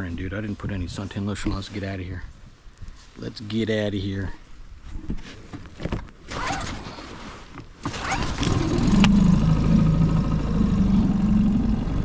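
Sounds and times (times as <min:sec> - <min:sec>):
outboard motor running: 0:07.8 - 0:12.0.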